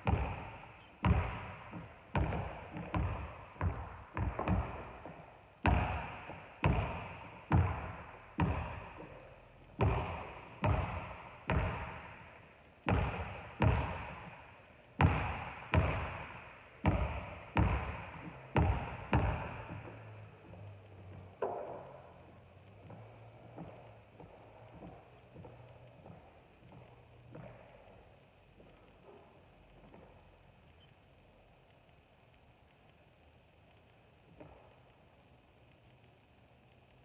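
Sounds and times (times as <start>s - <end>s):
basketball bouncing on wooden floor: 0.0s - 9.2s, 9.8s - 12.2s, 12.8s - 14.4s, 15.0s - 28.0s.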